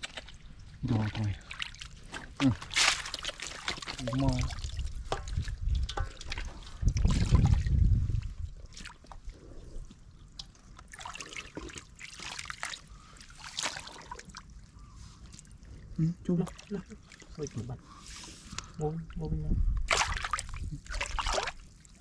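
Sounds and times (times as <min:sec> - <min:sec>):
water dripping: 0:00.0 - 0:17.7
water sloshing and splashing: 0:00.0 - 0:19.2, 0:19.8 - 0:22.0.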